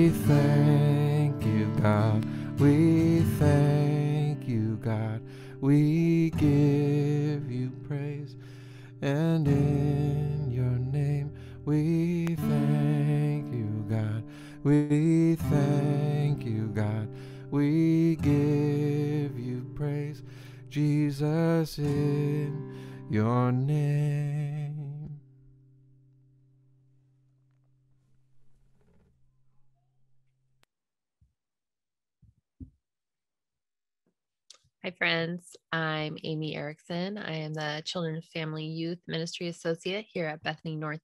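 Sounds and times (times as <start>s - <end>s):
man singing: 0.0s - 8.4s, 9.0s - 25.2s
acoustic guitar strumming: 0.0s - 26.2s.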